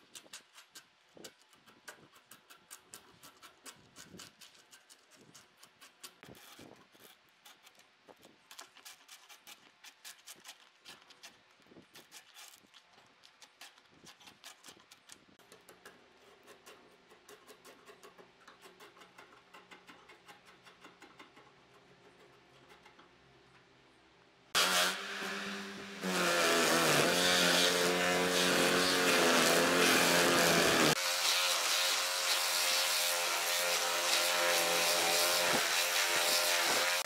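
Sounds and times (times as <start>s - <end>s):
chisel scraping bark: 0.0s - 23.2s, 24.5s - 37.0s
rotary power tool whining: 24.6s - 37.0s.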